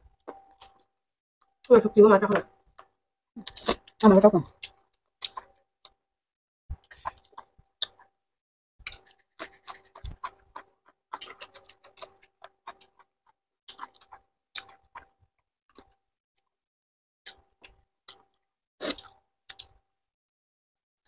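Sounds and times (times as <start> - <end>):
people eating with wet smacks: 2.8 - 6.0, 6.7 - 8.1, 8.8 - 16.0, 17.3 - 19.9.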